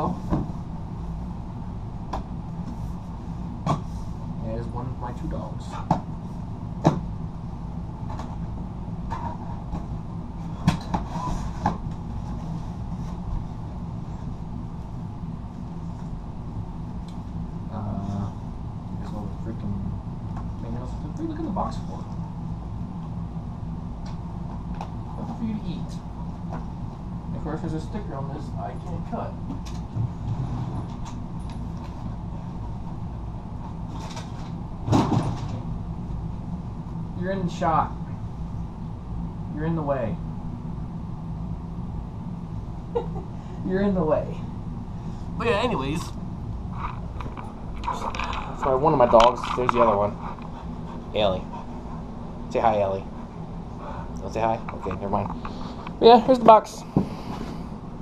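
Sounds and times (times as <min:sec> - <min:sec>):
steady low hum: 0:00.0 - 0:58.0.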